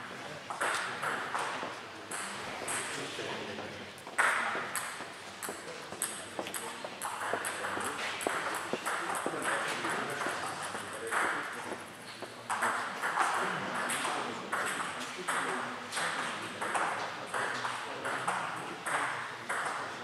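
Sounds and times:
table tennis balls clicking: 4.0 - 19.8.

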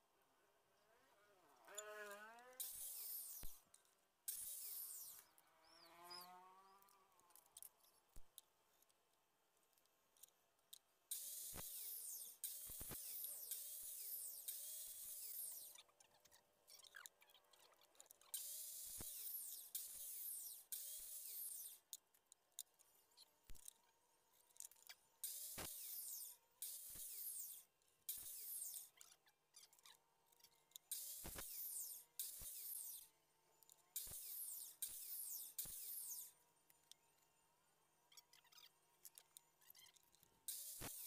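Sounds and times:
circular saw cutting wood: 1.7 - 3.6, 4.3 - 6.7, 11.1 - 15.8, 18.4 - 21.8, 25.2 - 28.9, 30.9 - 33.1, 34.0 - 36.3.

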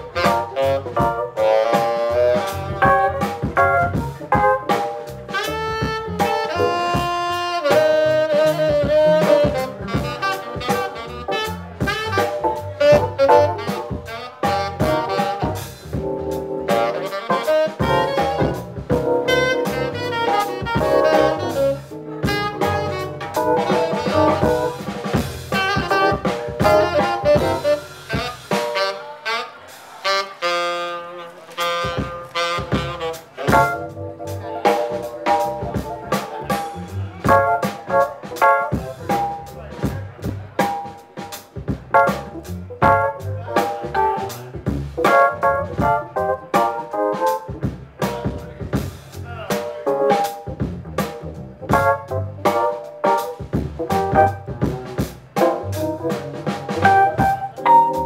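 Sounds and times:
upright double bass: 0.0 - 28.6, 31.7 - 58.0
keyboard: 0.0 - 29.3, 31.6 - 48.7, 49.3 - 58.0
saxophone melody: 0.0 - 36.6, 51.7 - 58.0
drum kit: 0.0 - 58.0.

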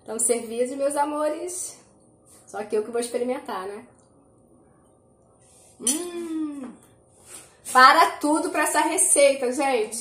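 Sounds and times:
woman humming mmm: 5.8 - 6.9.

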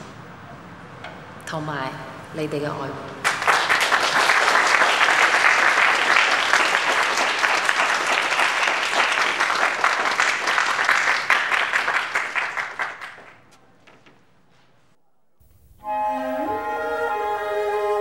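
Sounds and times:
crowd applauding: 3.2 - 13.6.

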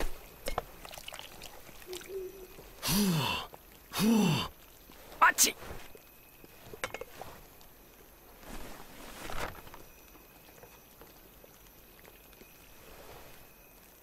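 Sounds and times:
faint steady background noise: 0.0 - 14.0
paper map rustling: 4.9 - 11.4.

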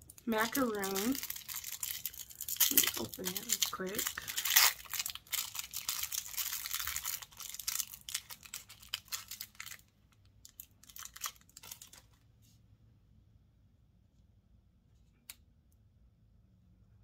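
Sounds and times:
plastic wrapper crinkling: 0.0 - 12.2.

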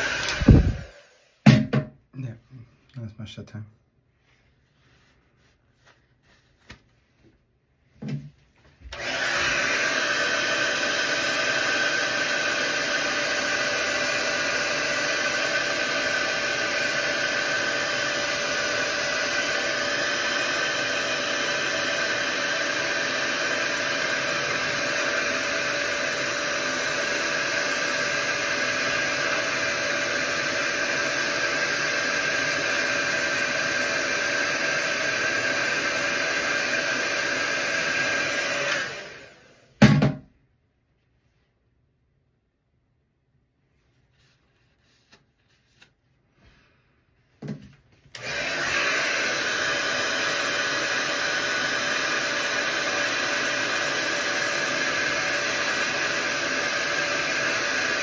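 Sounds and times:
hair dryer blowing: 0.0 - 1.8, 8.0 - 40.1, 47.4 - 58.0.

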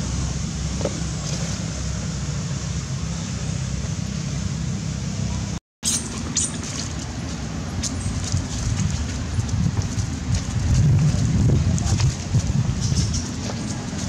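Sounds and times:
wind buffeting microphone: 6.2 - 14.0.

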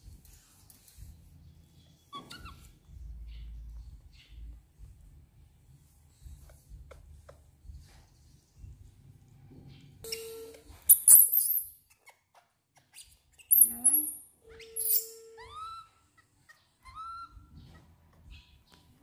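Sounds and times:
baby monkey squealing and chirping: 2.1 - 2.8, 10.9 - 12.2, 12.9 - 17.8.

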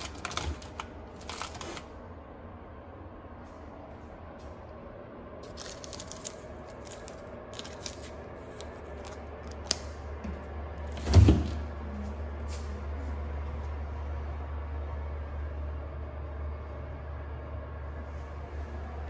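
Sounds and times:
paper strip crinkling and tearing: 0.0 - 1.9, 5.4 - 9.9
fridge door thump: 10.2 - 11.8.

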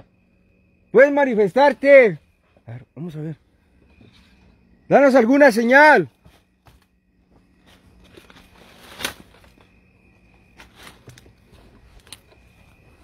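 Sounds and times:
rustling of dry brush: 7.6 - 9.6
twig snapping: 8.3 - 9.6.

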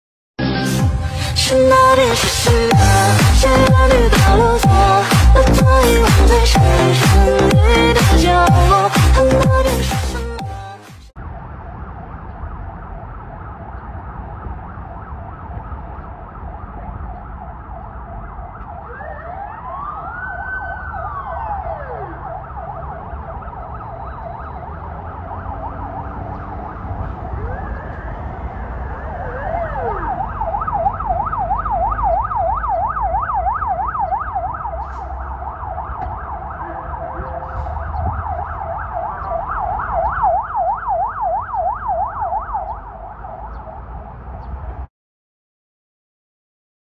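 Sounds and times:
city traffic rumble: 0.4 - 44.9
ambulance siren yelp: 1.2 - 44.1
siren wail: 11.2 - 44.2.

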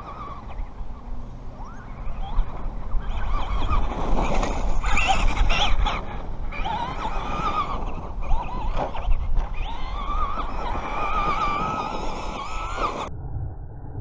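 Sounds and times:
toy truck motor whining: 1.7 - 13.1
steady low rumble: 13.0 - 14.0.

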